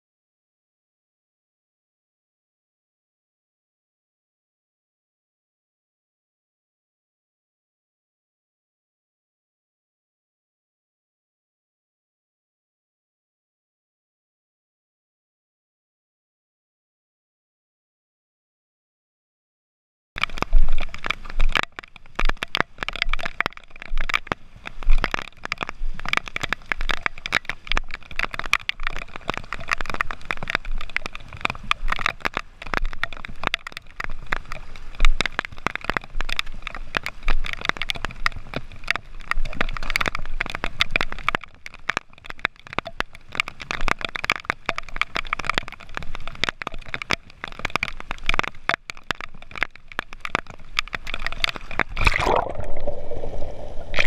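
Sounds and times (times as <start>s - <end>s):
underwater crackling: 20.2s - 54.0s.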